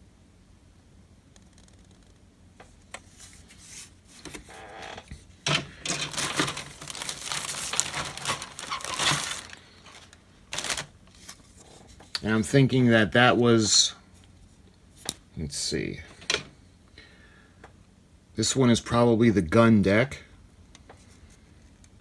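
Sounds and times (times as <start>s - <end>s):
plastic bag crinkling: 5.5s - 11.6s.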